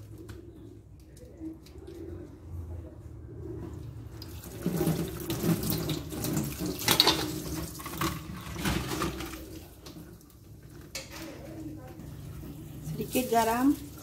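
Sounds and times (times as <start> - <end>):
tap water running into sink: 4.2 - 10.3.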